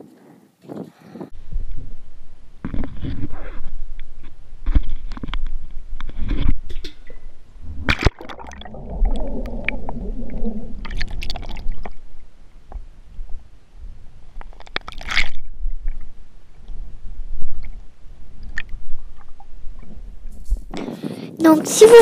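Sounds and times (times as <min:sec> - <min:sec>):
underwater rumble and gurgling: 0:01.4 - 0:20.9
knocks underwater: 0:06.3 - 0:12.9.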